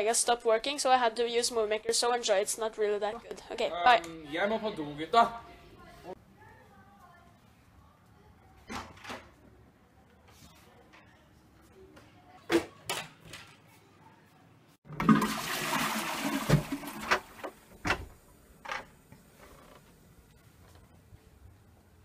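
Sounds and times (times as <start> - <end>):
toilet flushing: 14.9 - 17.8.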